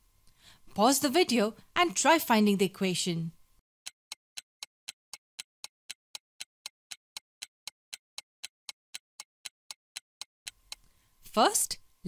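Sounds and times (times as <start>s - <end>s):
clock-like ticking: 3.8s - 10.8s.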